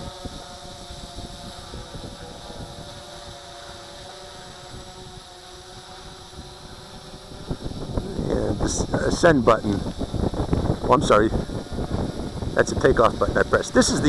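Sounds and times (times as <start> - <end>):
drone propellers humming: 0.0 - 14.0
wind rumbling on microphone: 0.0 - 14.0.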